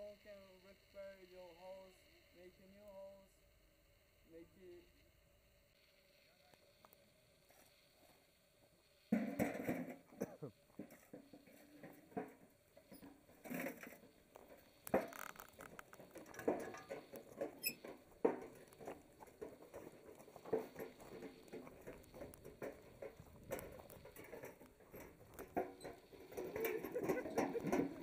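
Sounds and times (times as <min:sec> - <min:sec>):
crunching on loose gravel: 0:10.1 - 0:28.0
stones knocking and clattering: 0:14.8 - 0:17.2.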